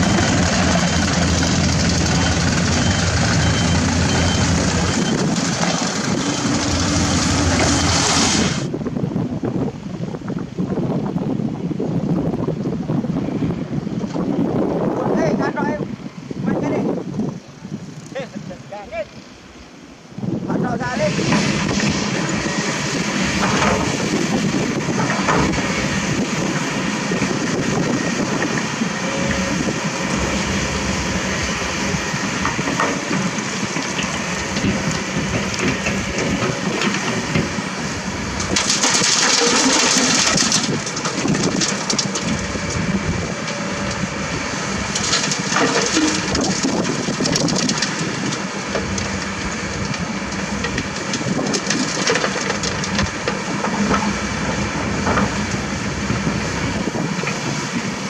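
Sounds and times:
excavators running: 0.0s - 9.1s, 13.1s - 58.0s
stones scraping steel buckets: 38.3s - 42.7s, 44.7s - 54.2s.

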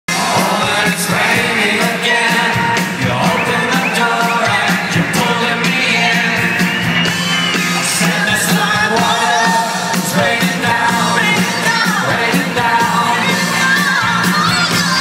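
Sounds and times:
person singing: 0.1s - 6.6s
live rock band playing: 0.1s - 15.0s.

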